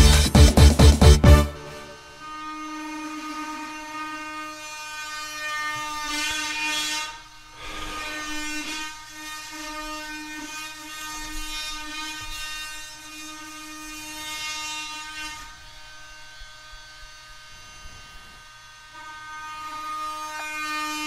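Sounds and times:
machinery whine: 0.0s - 2.6s.

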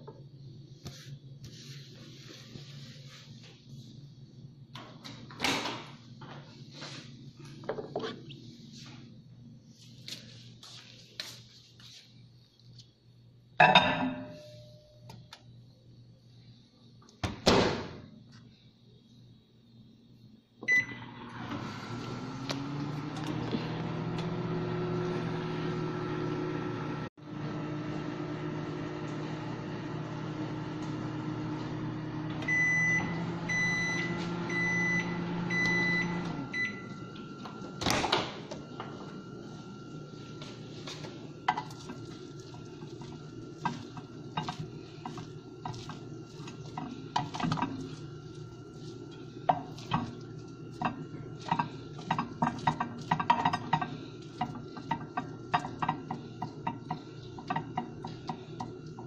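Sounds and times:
microwave oven humming: 0.0s - 59.0s
microwave beeps: 20.6s - 23.4s, 28.5s - 41.5s.

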